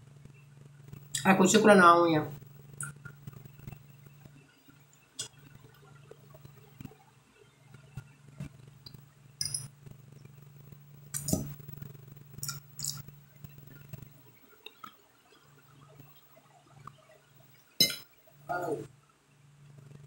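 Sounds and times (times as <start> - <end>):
metal fork clinking on glass plate: 9.4 - 9.7, 17.8 - 18.0.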